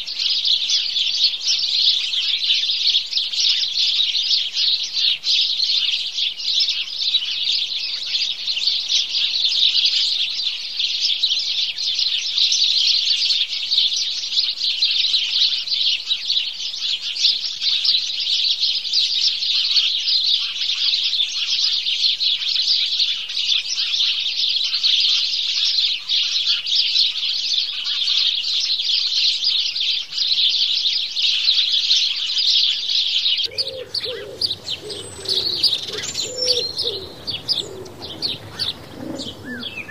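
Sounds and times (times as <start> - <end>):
sparrows chirping: 0.0 - 39.9
low wavering bird call: 33.5 - 39.9.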